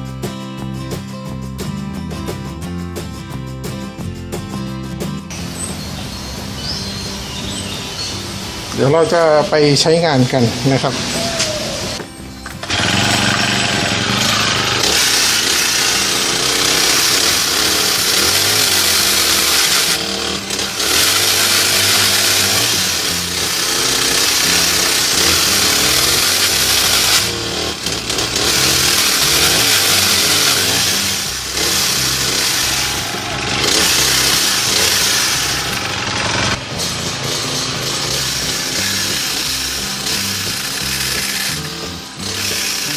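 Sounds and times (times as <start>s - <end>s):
pole saw engine at high revs: 8.8s - 12.0s, 12.6s - 42.9s
saw chain cutting bamboo: 8.8s - 42.9s.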